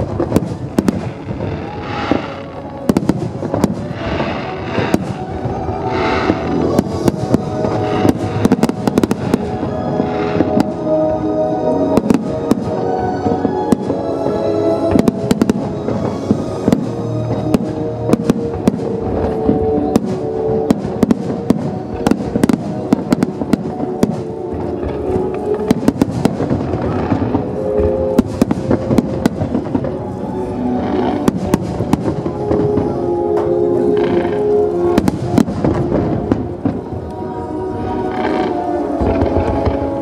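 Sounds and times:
fireworks bangs and crackles: 0.0 - 40.0
music playing: 0.0 - 40.0.

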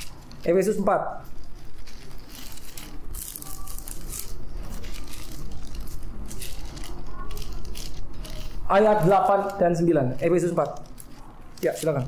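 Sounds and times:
paper pages rustling: 0.0 - 12.0.

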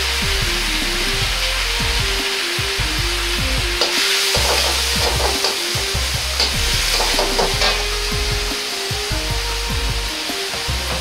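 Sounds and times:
cabbage sizzling in a wok: 0.0 - 11.0
metal ladle scraping: 3.8 - 8.1.

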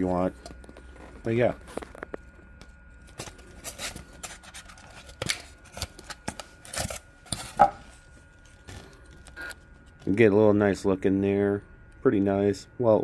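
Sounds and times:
styrofoam rubbing and creaking: 3.0 - 9.7.

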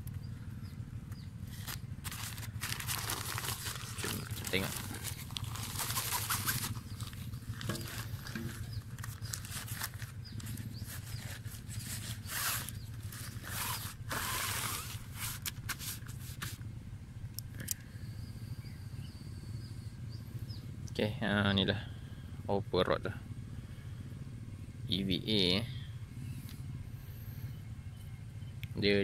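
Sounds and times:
steady low hum: 0.0 - 29.0
nylon bag rustling and swishing: 1.5 - 16.5.

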